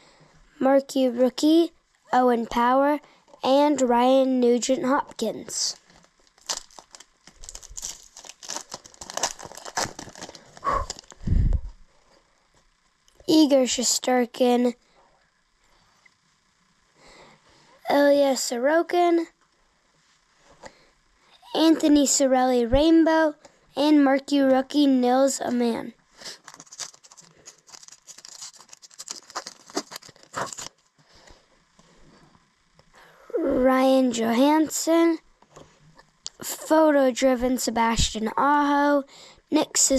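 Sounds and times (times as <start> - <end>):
foil wrapper crinkling and tearing: 5.7 - 11.2, 26.2 - 30.8.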